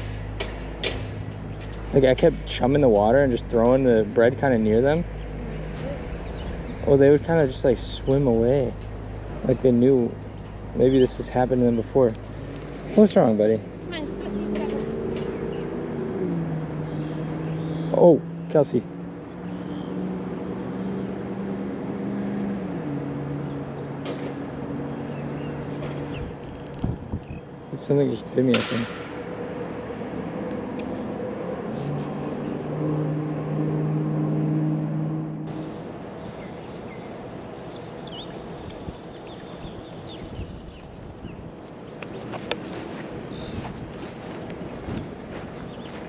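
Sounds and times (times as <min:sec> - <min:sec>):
steady rushing noise: 0:00.0 - 0:17.2, 0:35.5 - 0:46.0
engine hum: 0:00.0 - 0:27.2, 0:28.6 - 0:46.0
sharp clicks and taps: 0:00.3 - 0:02.3.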